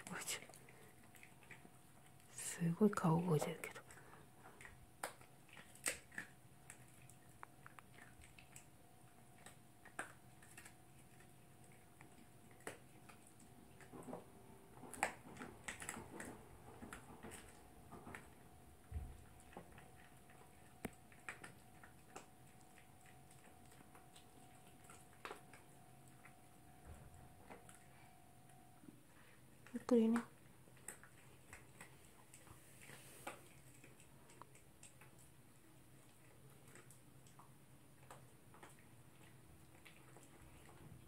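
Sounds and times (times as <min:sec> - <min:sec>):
dog chewing crunches and clicks: 0:00.0 - 0:41.0.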